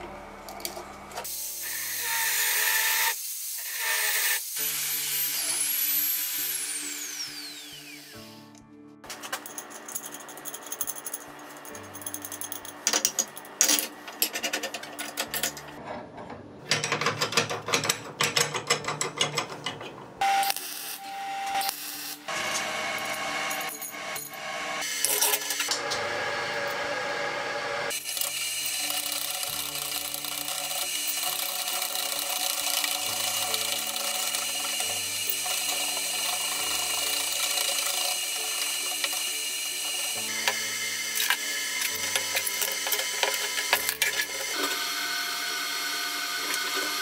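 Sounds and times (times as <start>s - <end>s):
metal clicks and knocks: 12.8s - 20.1s.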